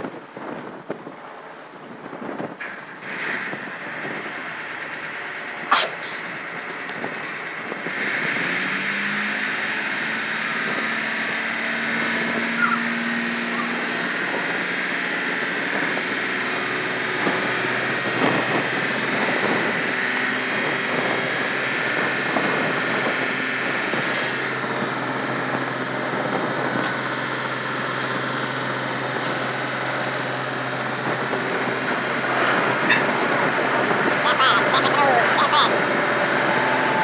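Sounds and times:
ship engine drone: 0.0 - 37.0
water rushing wash: 1.3 - 37.0.

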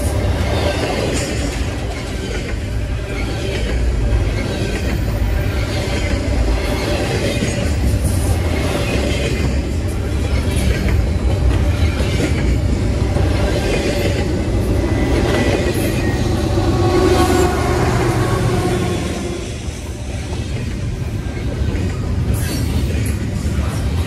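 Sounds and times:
train wheels rumbling on rails: 0.0 - 24.0.

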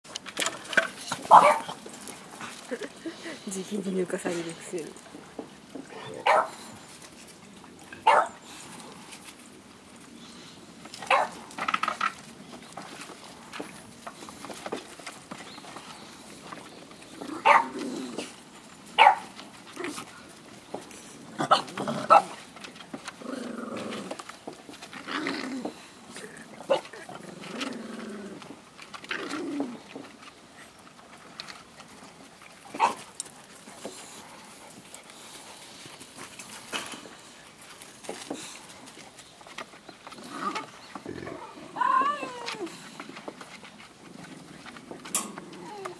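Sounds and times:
dogs scuffling: 0.1 - 45.9
dog barking: 1.3 - 1.7, 6.2 - 6.6, 8.0 - 8.4, 11.1 - 11.4, 17.4 - 17.7, 19.0 - 19.3.

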